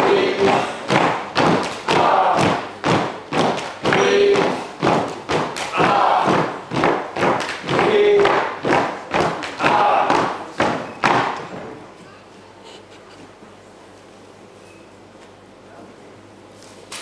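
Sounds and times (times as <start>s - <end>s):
feet stamping on wooden stage: 0.0s - 11.8s.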